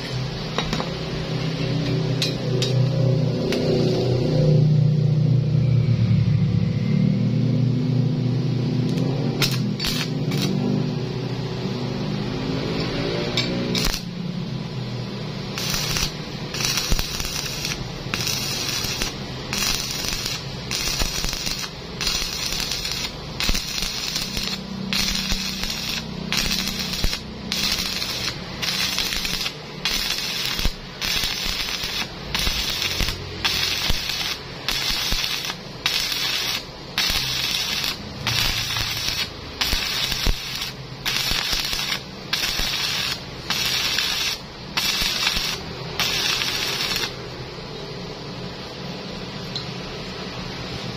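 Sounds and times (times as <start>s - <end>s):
welding arc crackling: 8.9s - 11.4s, 13.3s - 14.2s, 15.2s - 47.3s.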